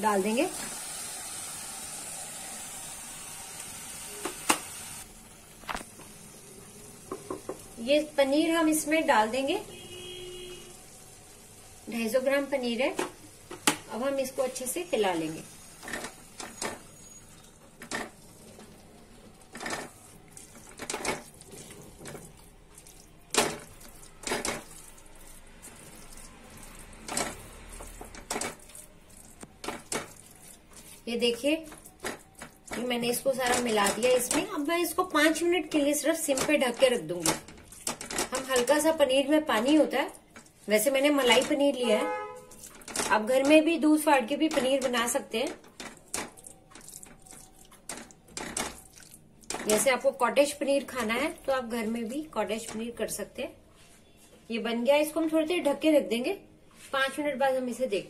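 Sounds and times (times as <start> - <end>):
food sizzling in a pan: 0.0 - 9.5, 10.4 - 36.8.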